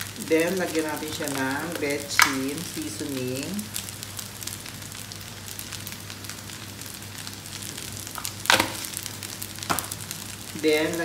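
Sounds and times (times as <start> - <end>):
rice sizzling in a wok: 0.0 - 11.0.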